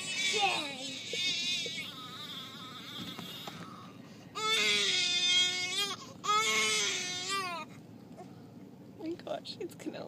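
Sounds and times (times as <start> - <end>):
child whimpering: 0.0 - 5.0
child crying: 0.0 - 7.7.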